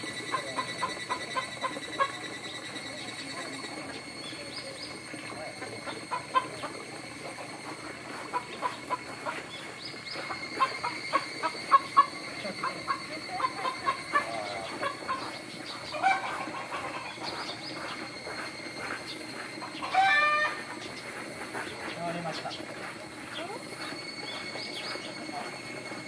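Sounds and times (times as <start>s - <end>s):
chickens clucking: 0.0s - 26.0s
cicadas singing faintly: 0.0s - 26.0s
chicken squawk: 10.2s - 17.9s, 19.7s - 20.7s.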